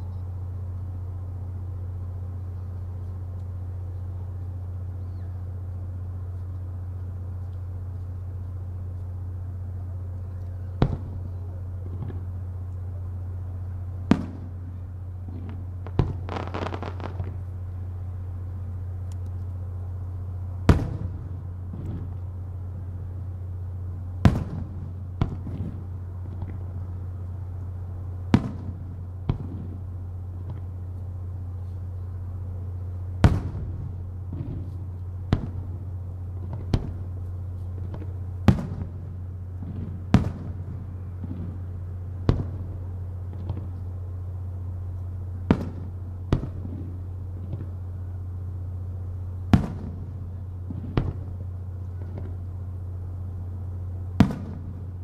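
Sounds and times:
steady low hum: 0.0s - 55.0s
firework shells bursting: 15.4s - 17.5s.

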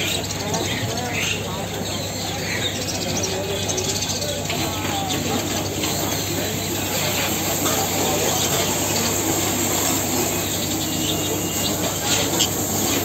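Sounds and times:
crowd noise: 0.0s - 13.0s
distant voices: 0.0s - 13.0s
faint high chirps: 10.0s - 12.6s.

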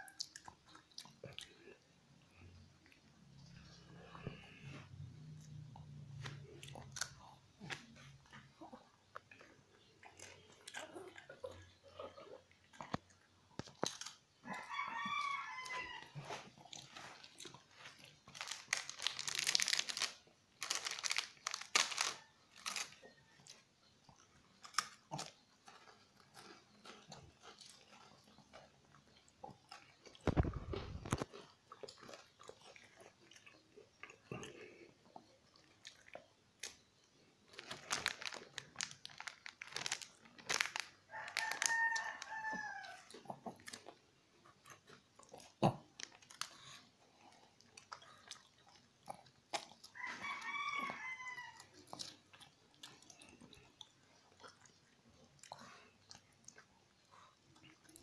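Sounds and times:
dog crunching a cracker: 12.6s - 23.1s, 24.2s - 34.8s, 37.5s - 58.0s.

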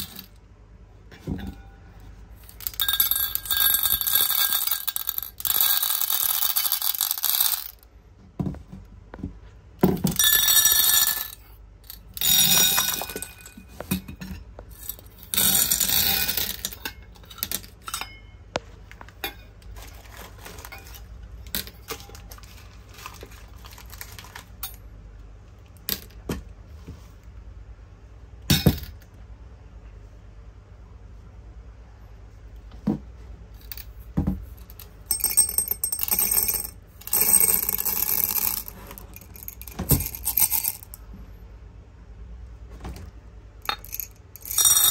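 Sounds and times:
small hard objects clinking: 2.4s - 7.8s, 10.0s - 13.9s, 19.2s - 24.8s, 34.7s - 41.0s, 43.7s - 44.9s.

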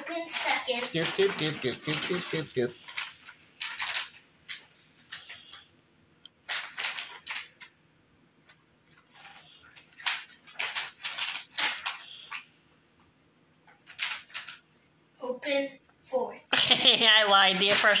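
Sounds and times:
wrapping paper rustling: 0.0s - 5.7s, 6.4s - 7.8s, 8.4s - 12.5s, 13.7s - 14.8s, 17.4s - 18.0s.

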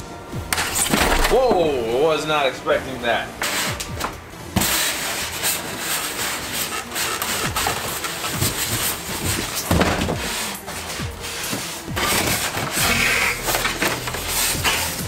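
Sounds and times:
scraping and scuffling: 0.5s - 1.8s, 3.4s - 15.0s
styrofoam squeaking against cardboard: 4.6s - 15.0s.

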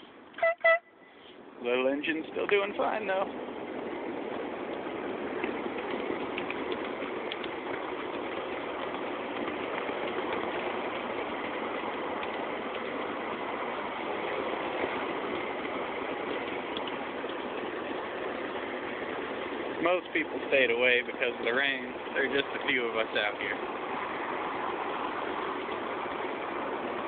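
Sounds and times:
wheels rolling on track: 1.5s - 27.0s
miniature railway locomotive running: 1.6s - 27.0s
faint ticks: 4.7s - 13.0s.

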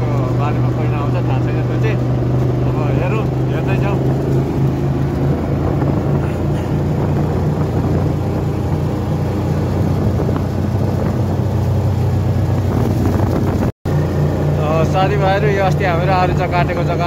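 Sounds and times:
vehicle engine humming: 0.0s - 17.0s
wind noise: 2.0s - 14.4s.

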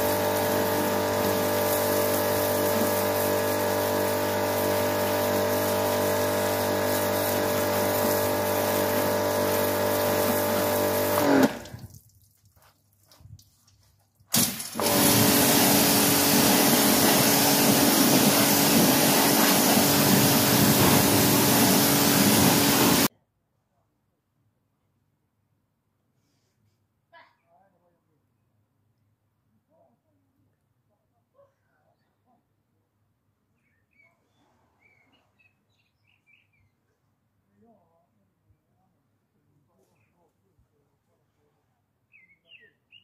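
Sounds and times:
pressure washer motor hum: 0.0s - 11.9s, 14.3s - 23.1s
water spray hissing: 0.0s - 12.0s, 14.3s - 23.1s
water dripping: 0.0s - 14.8s.

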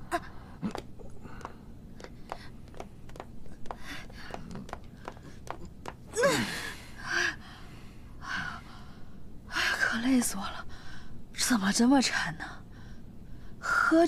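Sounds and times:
footsteps on hard floor: 2.0s - 6.1s
person gasping: 6.1s - 7.7s.

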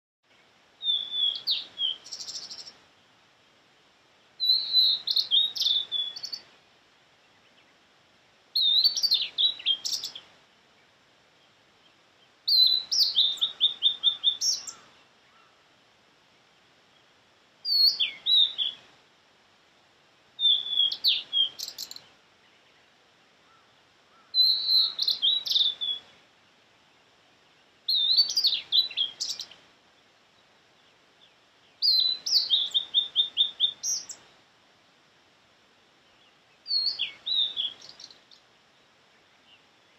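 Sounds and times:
bird singing whistled notes: 0.3s - 2.8s, 4.4s - 6.6s, 8.5s - 10.3s, 11.8s - 15.6s, 17.6s - 18.9s, 20.4s - 26.2s, 27.5s - 29.6s, 30.4s - 34.3s, 36.0s - 38.5s.

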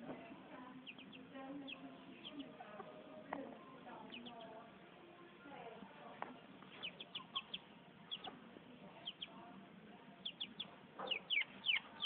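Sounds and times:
chick peeping: 0.7s - 2.8s, 4.0s - 4.6s, 6.6s - 8.4s, 9.0s - 9.5s, 10.2s - 12.0s.

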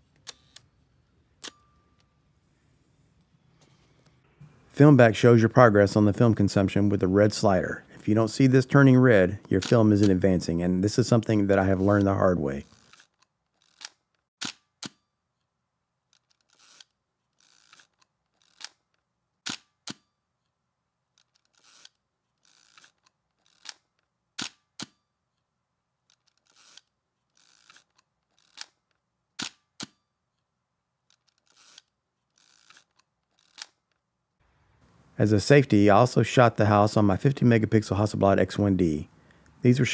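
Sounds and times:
film winding rasp: 11.8s - 14.1s, 16.2s - 18.8s, 21.2s - 23.9s, 26.1s - 28.8s, 31.1s - 33.9s
camera shutter click: 11.8s - 15.0s, 19.5s - 20.0s, 24.4s - 25.0s, 29.4s - 30.0s.

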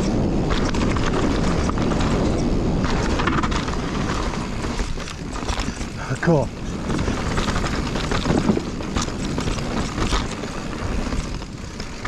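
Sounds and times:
bike knocking and rattling: 0.0s - 12.0s
tyre rumble on dirt: 0.0s - 12.0s
wind buffeting microphone: 0.0s - 12.0s.

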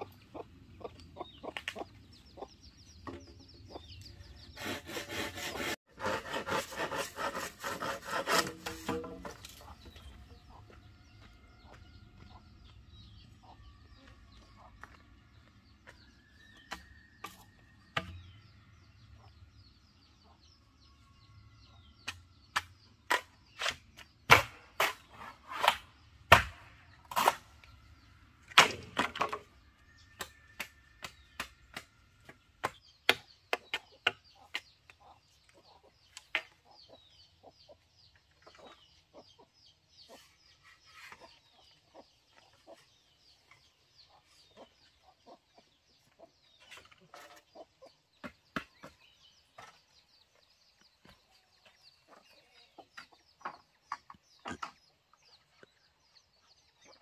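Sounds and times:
chickens clucking: 0.0s - 5.7s, 33.6s - 55.7s
small birds chirping: 0.0s - 5.8s, 8.6s - 57.0s
tool tapping bamboo: 7.8s - 9.5s.

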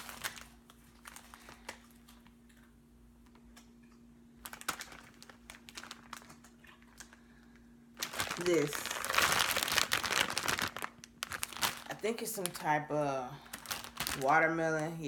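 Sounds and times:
plastic packaging crinkling: 0.0s - 2.7s, 4.4s - 15.0s
faint steady hum: 0.0s - 15.0s.

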